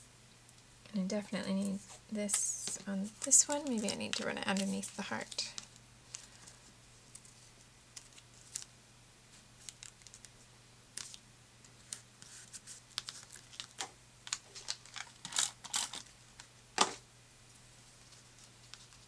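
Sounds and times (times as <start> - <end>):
paper rustling and tapping: 2.3 - 6.3, 13.0 - 17.0.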